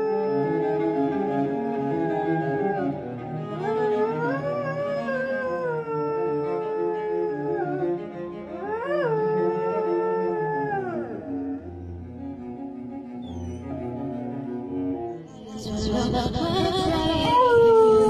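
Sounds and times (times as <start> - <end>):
dog howling: 0.0 - 3.0, 3.6 - 11.9
slow bowed string music: 0.0 - 18.0.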